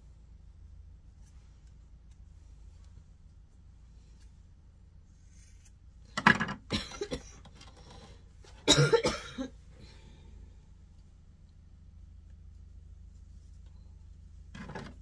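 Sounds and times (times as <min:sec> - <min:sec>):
person coughing: 0:06.7 - 0:07.4, 0:08.6 - 0:09.6.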